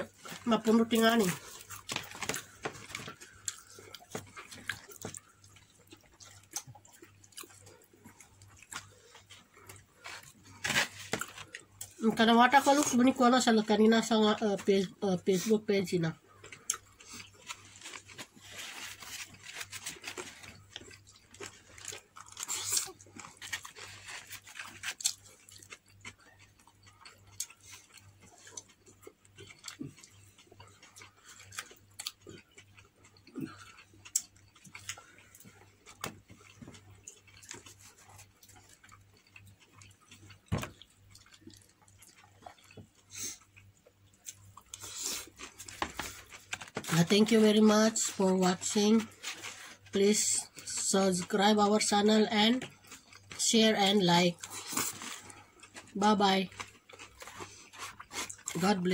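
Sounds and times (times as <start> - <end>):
chewing and lip smacks: 1.2 - 10.5, 16.3 - 18.5, 19.1 - 46.8, 52.6 - 53.5, 54.4 - 58.6.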